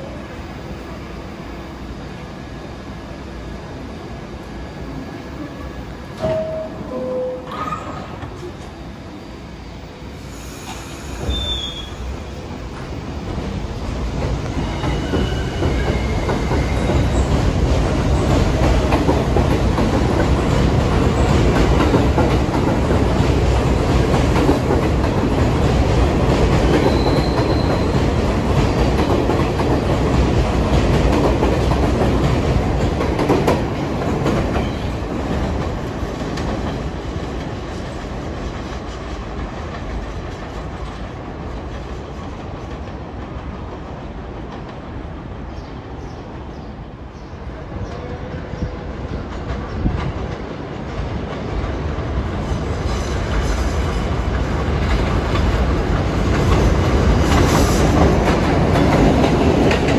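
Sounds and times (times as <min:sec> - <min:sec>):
faint train wheel squeals: 0:10.2 - 0:12.2, 0:14.4 - 0:17.4, 0:26.7 - 0:28.0
train wheels clacking over rails: 0:12.6 - 0:45.0, 0:47.8 - 0:59.9.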